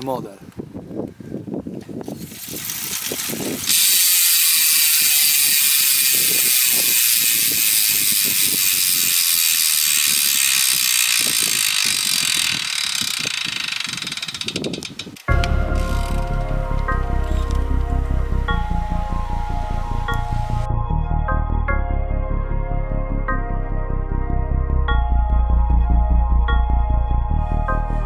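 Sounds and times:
bicycle freehub buzzing: 0:02.0 - 0:20.7.

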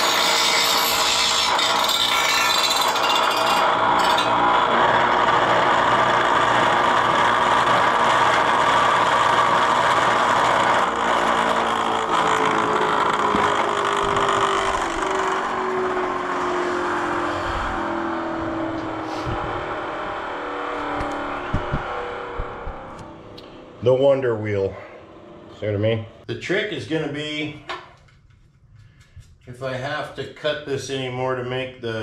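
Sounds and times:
bench grinder grinding metal: 0:00.0 - 0:22.1
sharp knocks: 0:21.0 - 0:23.1.

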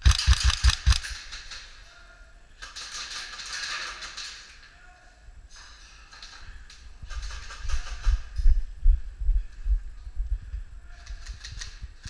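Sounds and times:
airsoft gun shots: 0:00.0 - 0:01.1
rattling clicks of airsoft gun: 0:00.0 - 0:01.6.

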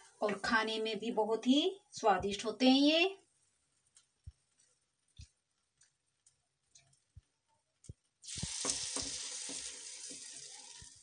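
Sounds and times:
batter sizzling in a pan: 0:07.8 - 0:11.0
spoon taps: 0:08.4 - 0:10.5.

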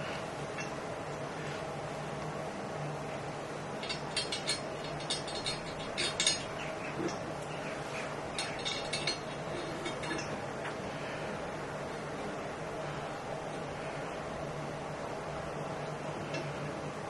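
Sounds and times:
steady low hum: 0:00.0 - 0:17.0
metal parts clicking and clinking: 0:03.8 - 0:07.2, 0:08.3 - 0:10.4.

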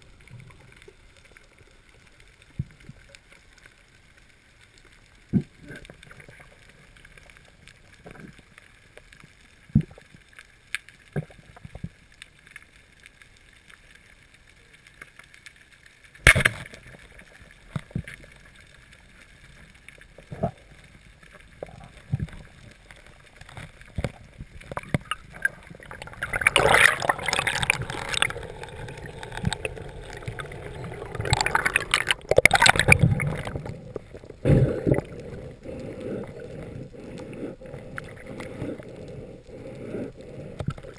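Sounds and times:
water rushing and gurgling: 0:16.3 - 0:40.9
underwater clicks and knocks: 0:23.4 - 0:35.1.

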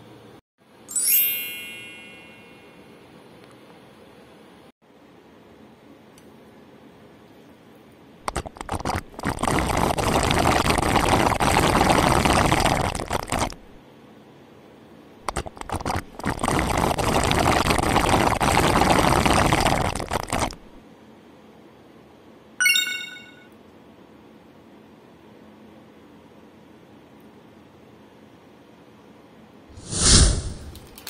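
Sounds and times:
noodles being slurped loudly: 0:08.2 - 0:13.8, 0:15.2 - 0:20.8
short high-pitched beep: 0:22.6 - 0:23.5.

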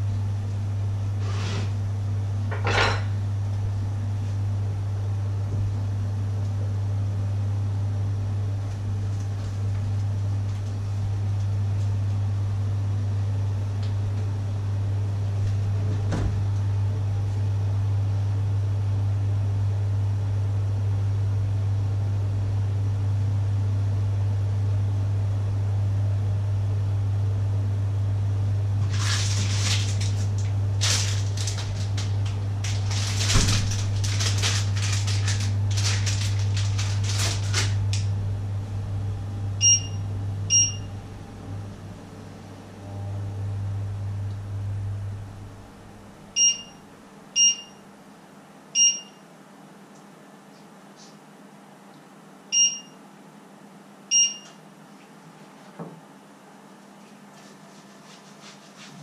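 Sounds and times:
kitchen appliance humming: 0:00.0 - 0:47.6
rustling noise: 0:28.8 - 0:37.8, 0:56.9 - 0:59.0
short electronic beeps: 0:39.6 - 0:40.9, 0:46.4 - 0:46.8, 0:47.4 - 0:47.8, 0:48.8 - 0:49.2, 0:52.6 - 0:53.0, 0:54.1 - 0:54.5.

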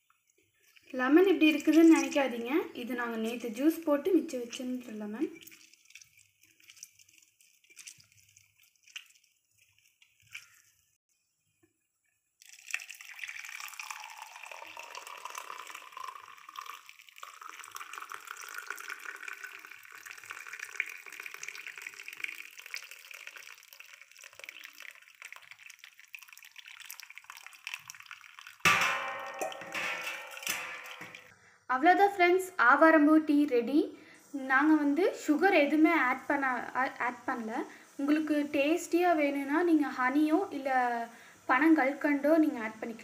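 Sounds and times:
faint drips: 0:00.0 - 0:11.0, 0:11.6 - 0:31.4, 0:33.8 - 0:43.0
tea pouring into glass: 0:00.6 - 0:10.6, 0:12.4 - 0:29.6.

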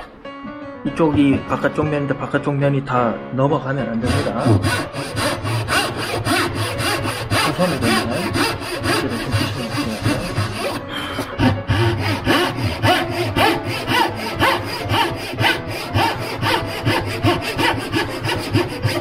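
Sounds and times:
hand saw cutting wood: 0:04.0 - 0:19.0.

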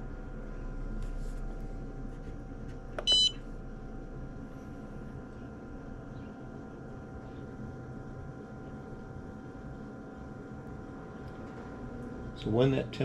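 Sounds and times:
short electronic beep: 0:03.0 - 0:03.4.

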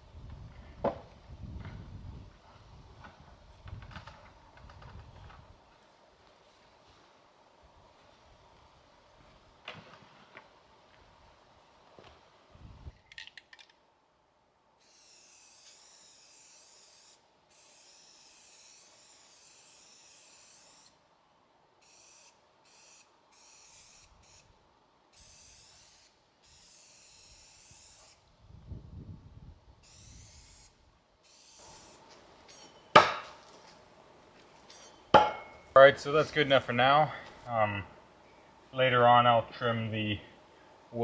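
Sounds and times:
spray paint can hissing: 0:25.2 - 0:28.2.

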